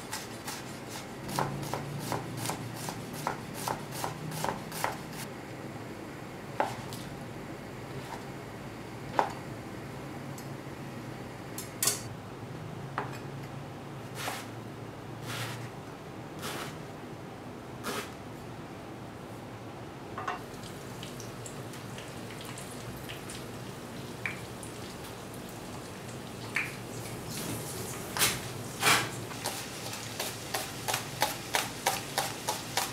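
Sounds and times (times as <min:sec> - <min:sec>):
knife chopping on cutting board: 0:00.0 - 0:05.1, 0:14.2 - 0:14.5
oil sizzling with pops: 0:20.4 - 0:28.4.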